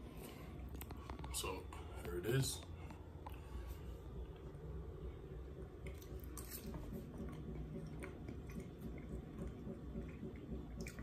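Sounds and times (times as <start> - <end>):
person chewing food: 5.7 - 11.0.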